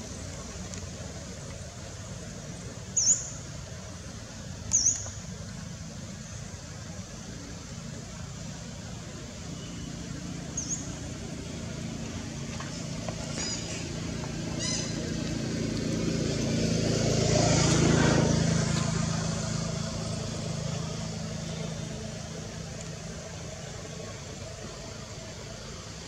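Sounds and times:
vehicle passing by: 9.9s - 25.3s.

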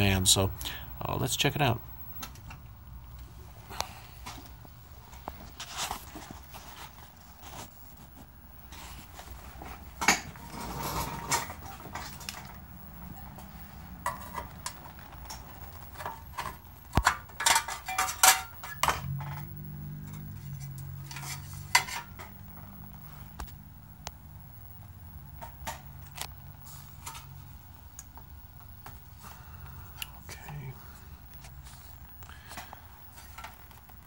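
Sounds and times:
low steady hum: 0.0s - 34.0s
sheet metal clinking and rattling: 14.0s - 22.4s.

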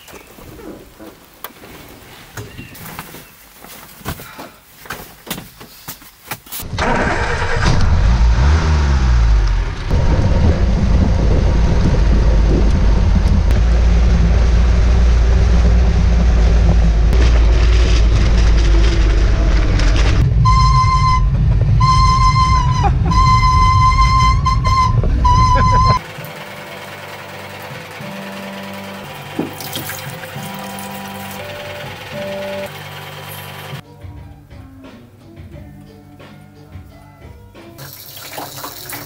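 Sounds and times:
road noise: 6.5s - 33.8s
vehicle engine running: 7.1s - 33.8s
high-pitched horn tone: 20.3s - 26.1s.

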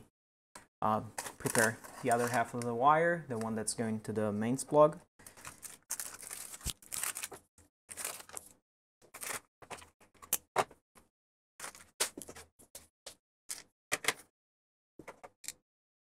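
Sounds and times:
plastic wrapping rustling: 1.2s - 2.6s, 5.2s - 8.5s.

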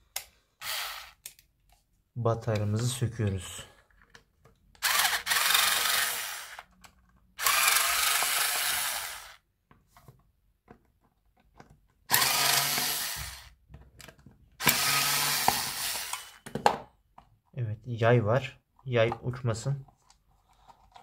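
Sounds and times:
electric screwdriver running: 0.6s - 1.2s, 4.8s - 6.7s, 7.4s - 9.4s, 12.1s - 13.5s, 14.6s - 16.4s.

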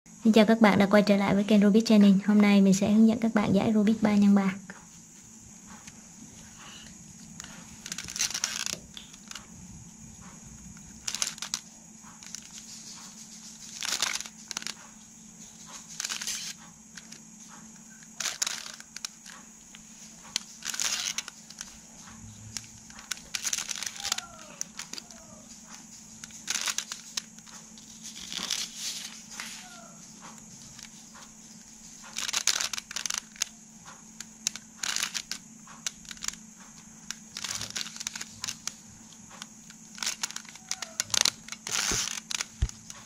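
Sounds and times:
puzzle cube layers clicking: 7.4s - 9.5s, 10.2s - 14.9s, 15.6s - 19.4s, 20.2s - 29.2s, 32.0s - 43.0s.

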